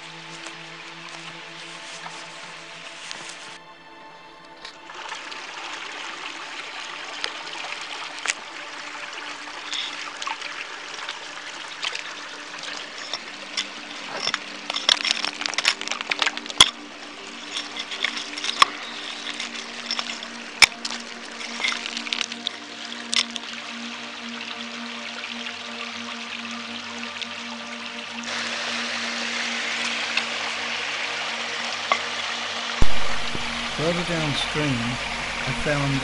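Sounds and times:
stream trickling over rocks: 0:00.0 - 0:03.6, 0:04.4 - 0:36.0
loose rock clicks and knocks: 0:11.9 - 0:23.4.

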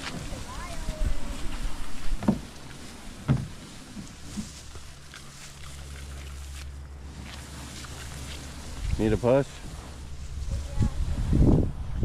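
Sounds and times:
kayak dragged through grass: 0:00.0 - 0:12.0
steady low hum: 0:00.0 - 0:12.0
thump and knocks: 0:02.2 - 0:02.5, 0:03.2 - 0:03.6.

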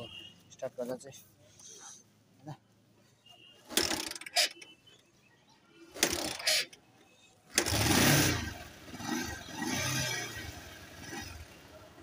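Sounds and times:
motorcycle engine starting: 0:07.5 - 0:12.0.

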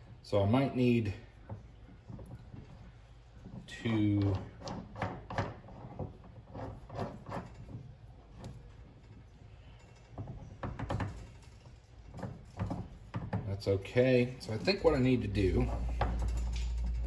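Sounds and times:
metal parts clicking and knocking: 0:01.4 - 0:17.0.

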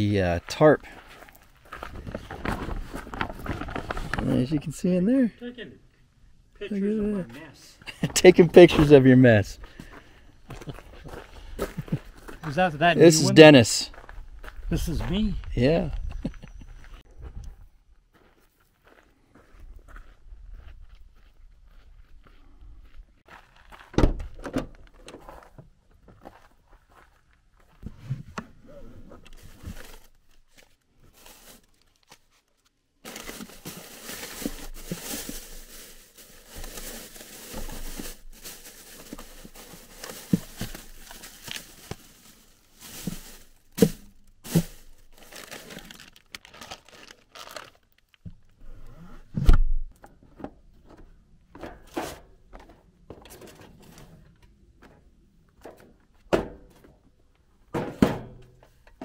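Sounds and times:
plastic bags rustling: 0:01.7 - 0:04.3, 0:29.4 - 0:32.2, 0:33.0 - 0:48.5
knocks and clunks: 0:49.3 - 0:57.0, 0:57.7 - 0:59.0.

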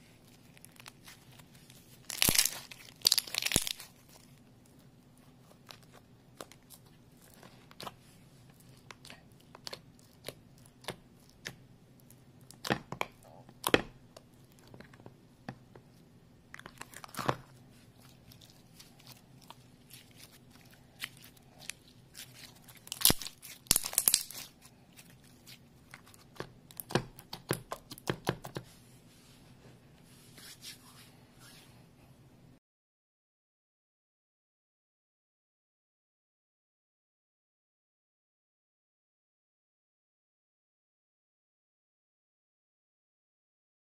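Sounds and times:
slime clicking and popping: 0:02.1 - 0:03.9, 0:22.8 - 0:24.5.

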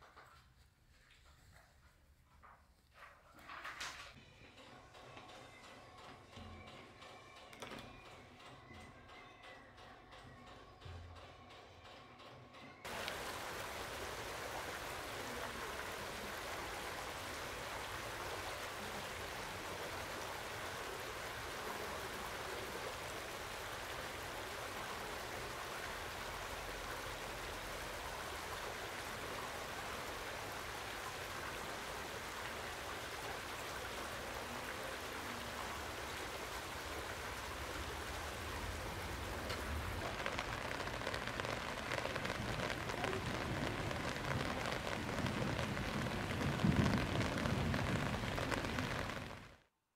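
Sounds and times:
rain falling on water: 0:12.8 - 0:49.7
stream running over stones: 0:12.9 - 0:49.6.

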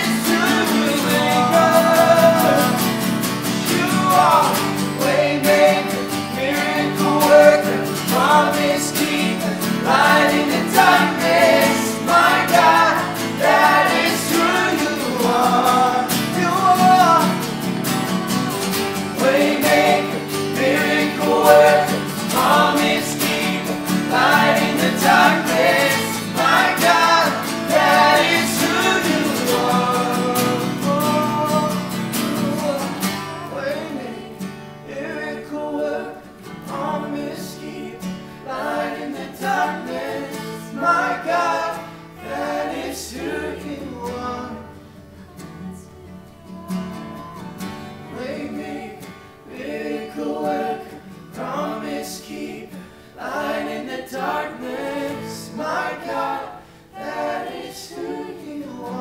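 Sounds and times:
acoustic guitar: 0:00.0 - 0:59.0
group of voices singing: 0:00.0 - 0:59.0.

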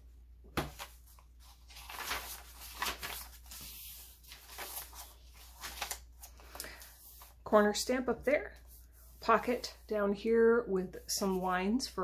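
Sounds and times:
paper pages rustling: 0:00.6 - 0:07.4.

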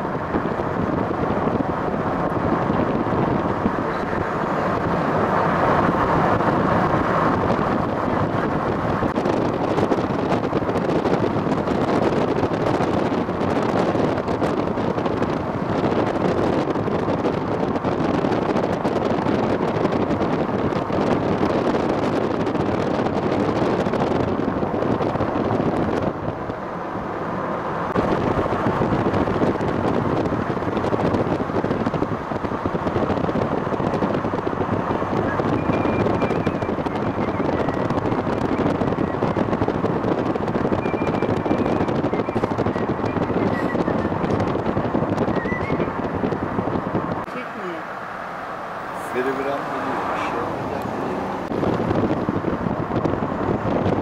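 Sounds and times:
vehicle road and wind noise: 0:00.0 - 0:54.0.

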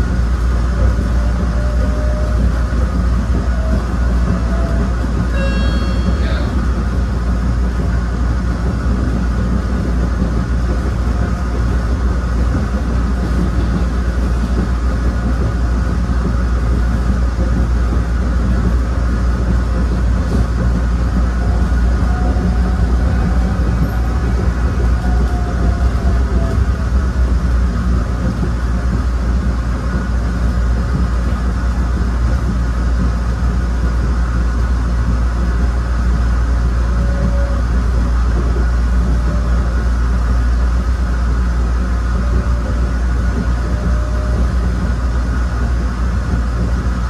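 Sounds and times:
electric railcar rumbling: 0:00.0 - 0:47.0
high-pitched tone: 0:05.3 - 0:06.6.

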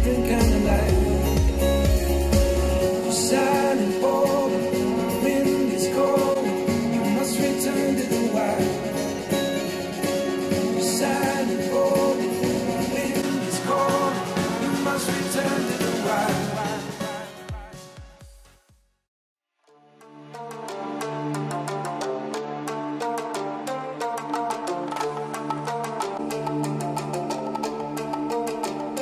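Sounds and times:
heavy bass line: 0:00.0 - 0:03.2
song over studio speakers: 0:00.0 - 0:18.6.

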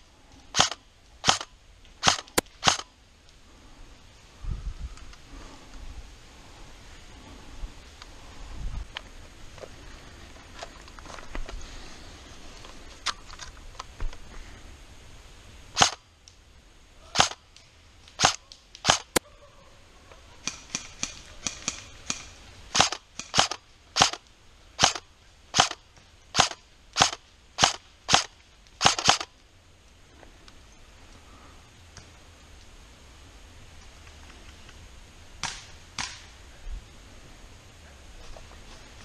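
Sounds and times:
airsoft rifle shots: 0:00.5 - 0:02.9, 0:15.8 - 0:16.0, 0:17.2 - 0:17.4, 0:18.2 - 0:19.2, 0:20.4 - 0:24.2, 0:24.8 - 0:29.3.

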